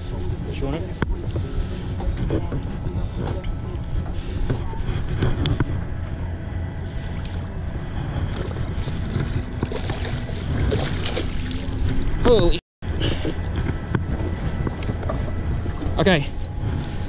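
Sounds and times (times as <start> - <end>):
water lapping against boat: 0.0 - 17.0
wind rumbling on microphone: 0.0 - 17.0
fish thrashing and splashing: 8.3 - 12.2.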